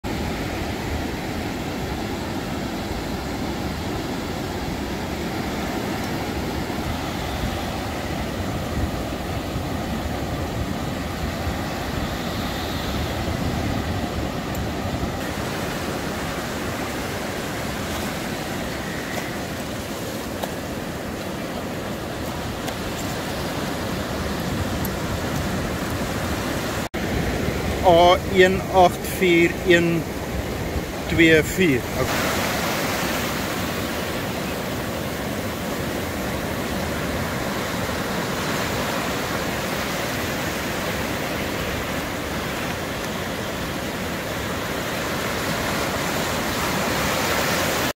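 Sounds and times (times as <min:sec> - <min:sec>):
waves breaking on beach: 0:00.0 - 0:47.9
wind rumbling on microphone: 0:02.9 - 0:27.9.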